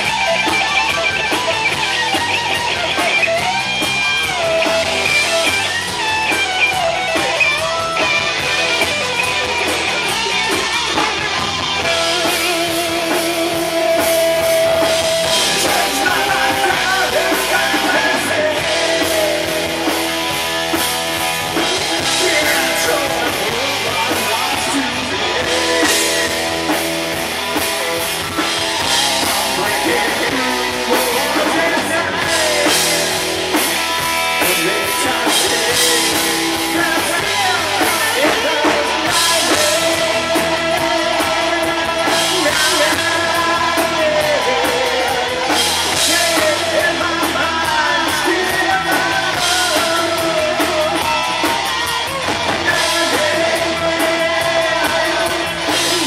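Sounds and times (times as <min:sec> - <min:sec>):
bass guitar: 0:00.0 - 0:56.0
distorted electric guitars: 0:00.0 - 0:56.0
drum kit with cymbals: 0:00.0 - 0:56.0
person singing: 0:11.8 - 0:20.4, 0:21.4 - 0:56.0.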